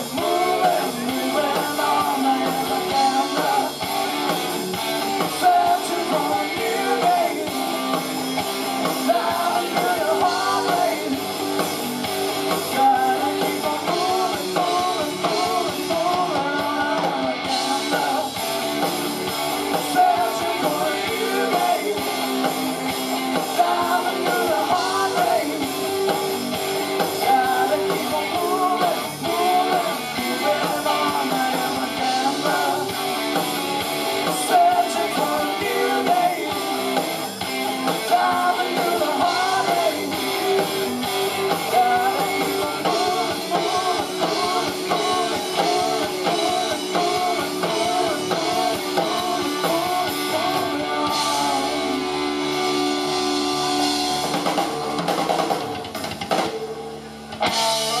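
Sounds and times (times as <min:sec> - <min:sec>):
person singing: 0:00.0 - 0:03.9, 0:05.1 - 0:08.0, 0:08.8 - 0:11.6, 0:12.5 - 0:18.4, 0:19.7 - 0:22.5, 0:23.4 - 0:26.1, 0:27.0 - 0:33.0, 0:34.2 - 0:37.0, 0:37.6 - 0:52.5
live rock band playing: 0:00.0 - 0:58.0.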